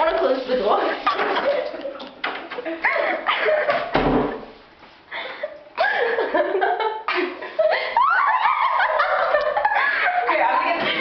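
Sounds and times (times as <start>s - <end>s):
people laughing: 2.5s - 3.9s, 5.2s - 11.0s
low thump: 3.9s - 4.4s.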